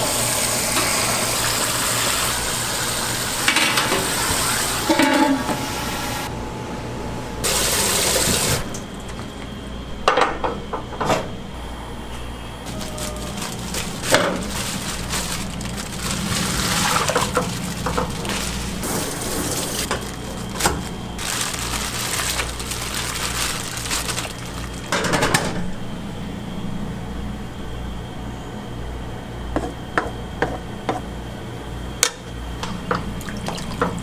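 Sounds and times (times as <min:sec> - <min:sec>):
steady low hum: 0:04.9 - 0:07.5, 0:08.6 - 0:34.0.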